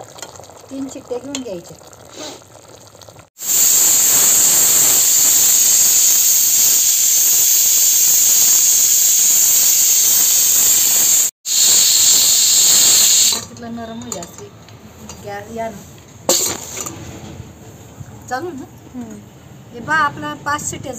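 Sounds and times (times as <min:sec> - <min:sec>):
pressure cooker steam hissing: 0:03.4 - 0:13.5, 0:16.3 - 0:16.9.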